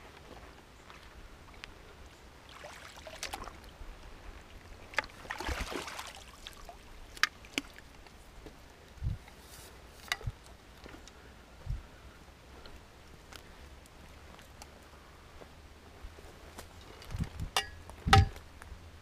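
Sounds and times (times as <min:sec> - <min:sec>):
fish splashing in water: 0:02.5 - 0:03.6, 0:05.0 - 0:06.8.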